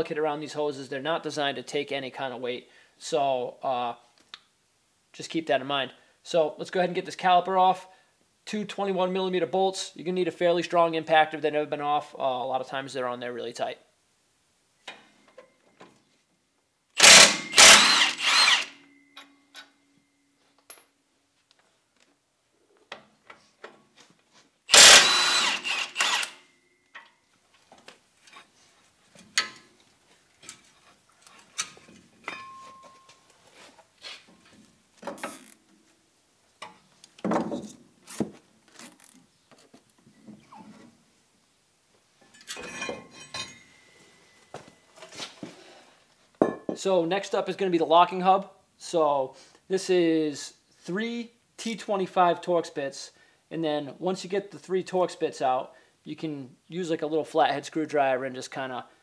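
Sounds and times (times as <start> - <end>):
impact wrench running: 17.0 - 18.8, 24.7 - 26.4.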